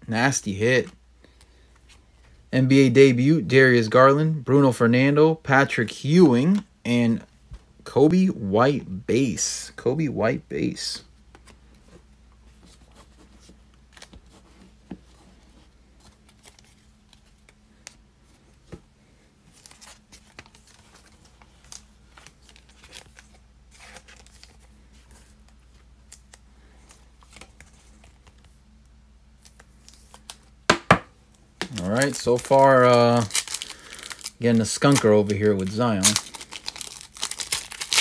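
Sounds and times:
low steady hum: 0:00.0 - 0:38.0
foil packs rustling: 0:31.7 - 0:38.0.

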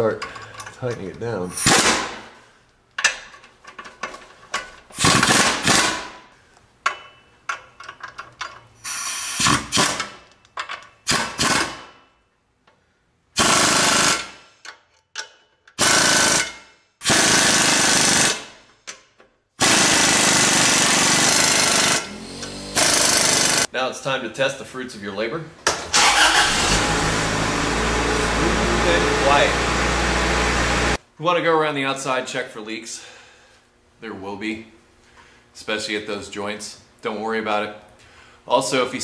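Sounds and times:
pneumatic air wrench bursts: 0:05.0 - 0:06.2, 0:08.8 - 0:10.2, 0:11.1 - 0:11.9, 0:13.4 - 0:14.6, 0:15.8 - 0:18.6, 0:19.6 - 0:23.7.

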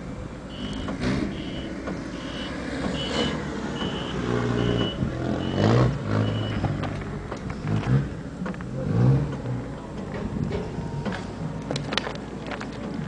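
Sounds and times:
engine rumble: 0:00.0 - 0:13.0
backup alarm beeping: 0:00.5 - 0:06.7.

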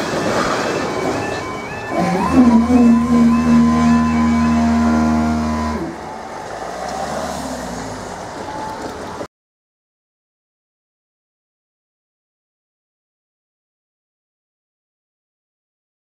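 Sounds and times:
hydraulic pump motor whining: 0:00.8 - 0:09.2.

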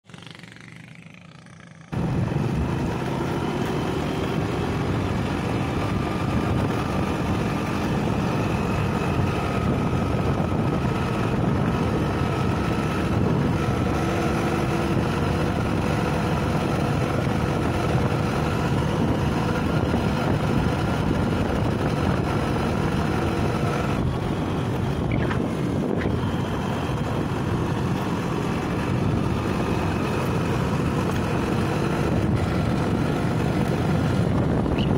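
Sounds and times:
vehicle engine running: 0:00.0 - 0:34.9
wind noise on microphone: 0:01.9 - 0:34.9.

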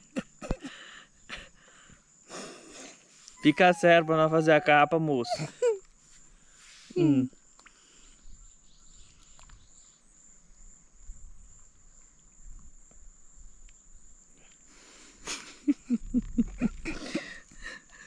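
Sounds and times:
person laughing: 0:00.0 - 0:01.5, 0:05.2 - 0:05.8, 0:07.0 - 0:07.3, 0:15.2 - 0:18.0
insects buzzing: 0:00.0 - 0:18.0.

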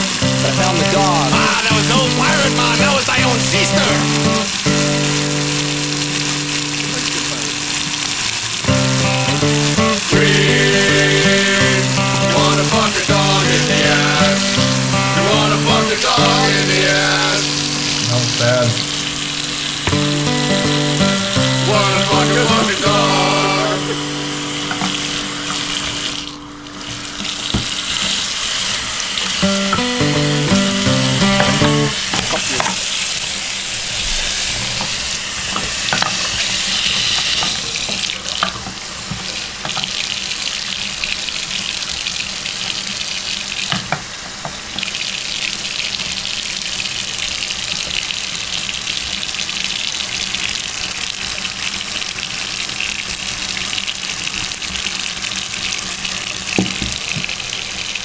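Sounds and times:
musical notes: 0:00.0 - 0:28.3, 0:29.2 - 0:32.2
loud rushing hiss: 0:00.0 - 0:37.8.

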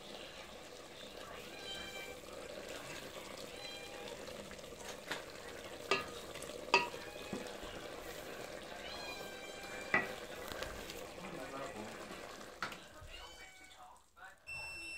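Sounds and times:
wooden spoon stirring in pot: 0:00.0 - 0:13.1
spoon knocking against pot: 0:05.9 - 0:07.5, 0:09.8 - 0:10.2.

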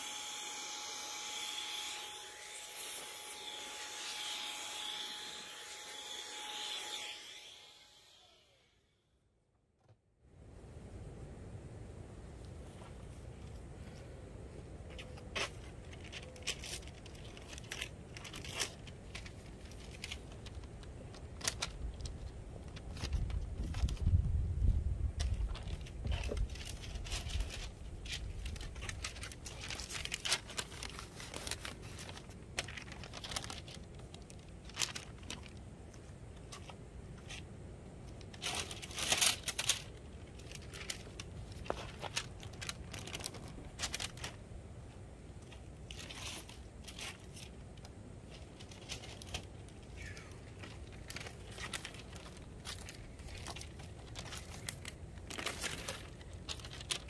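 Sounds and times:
crinkling and tearing: 0:14.9 - 0:24.2, 0:25.2 - 0:44.5, 0:45.4 - 0:57.0.

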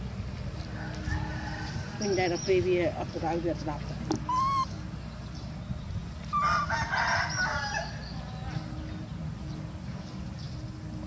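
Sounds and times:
rooster crowing: 0:00.8 - 0:02.0, 0:06.4 - 0:08.0.

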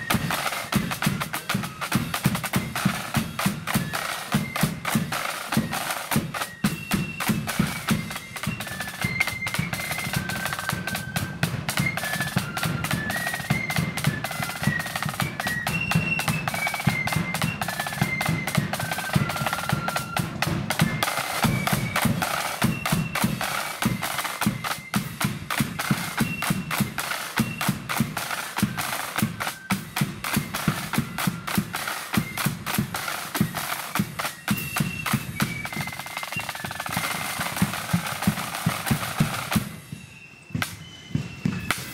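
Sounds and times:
high flute melody: 0:00.0 - 0:41.9
snare drum rolls: 0:00.0 - 0:41.9.

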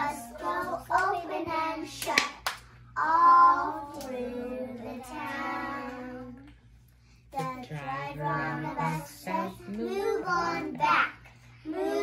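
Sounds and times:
children singing: 0:00.0 - 0:02.0
hand claps: 0:02.0 - 0:02.7.

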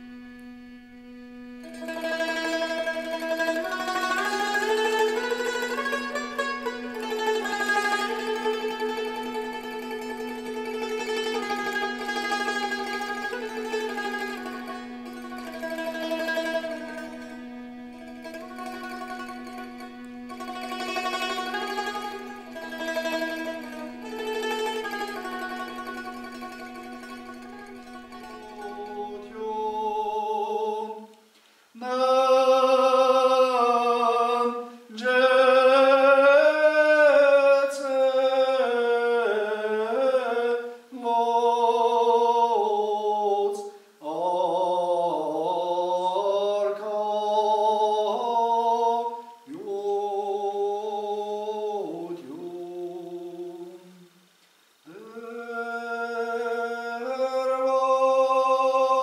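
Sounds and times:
man singing chant: 0:01.6 - 0:17.3, 0:20.3 - 0:31.2, 0:31.8 - 0:54.1, 0:54.8 - 0:59.0.

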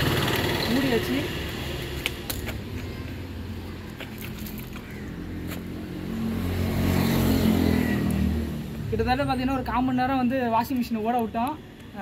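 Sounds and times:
engine running: 0:00.0 - 0:03.5.

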